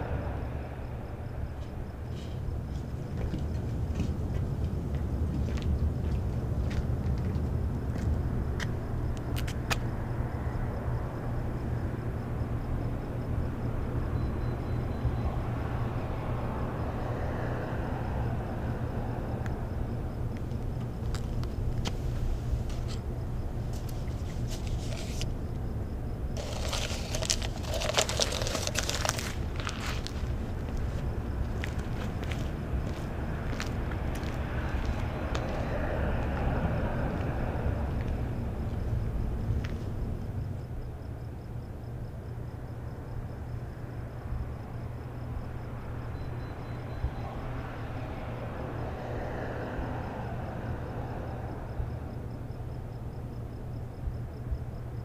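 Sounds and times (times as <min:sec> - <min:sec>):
low street rumble: 0:00.0 - 0:55.0
paper cup crinkling: 0:23.8 - 0:25.3, 0:26.4 - 0:31.0
vehicle passing: 0:26.4 - 0:40.6.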